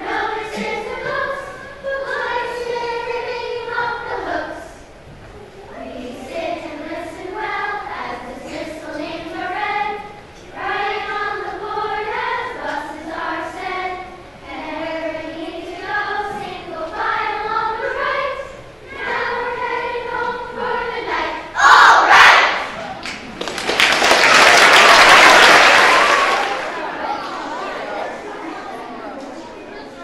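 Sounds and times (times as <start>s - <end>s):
children's choir singing: 0.0s - 22.9s, 24.0s - 30.0s
applause: 23.0s - 26.8s.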